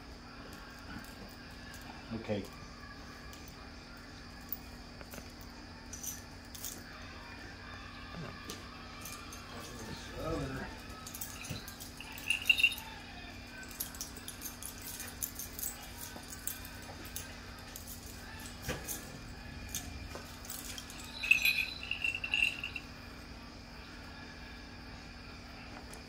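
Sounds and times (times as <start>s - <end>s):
metal jingles ringing: 4.4s - 6.9s, 9.0s - 23.2s.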